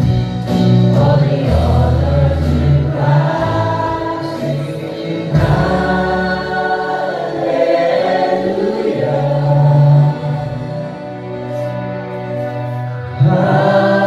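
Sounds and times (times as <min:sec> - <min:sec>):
guitars: 0:00.0 - 0:07.2
bass notes: 0:00.0 - 0:14.0
keyboard: 0:00.0 - 0:14.0
voices singing together: 0:00.8 - 0:14.0.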